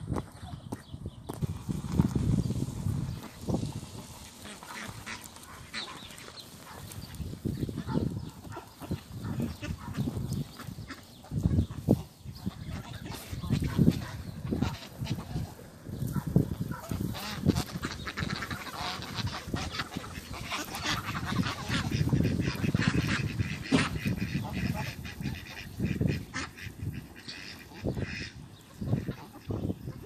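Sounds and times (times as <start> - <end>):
rustles and clicks: 1.3 - 10.7
ducks quacking: 2.8 - 30.0
geese honking: 2.8 - 30.0.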